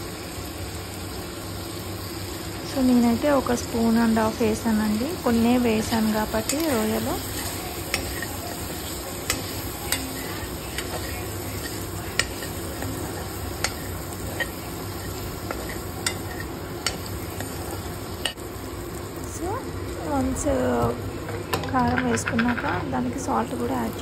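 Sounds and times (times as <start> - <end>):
prawns sizzling in oil: 0.0 - 24.0.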